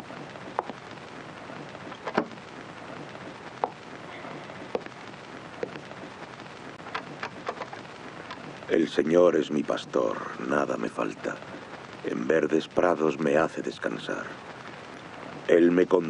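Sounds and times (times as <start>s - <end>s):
film soundtrack hiss and crackle: 0.0s - 16.0s
sharp clicks and knocks: 0.6s - 0.8s, 1.9s - 2.4s, 6.8s - 8.4s.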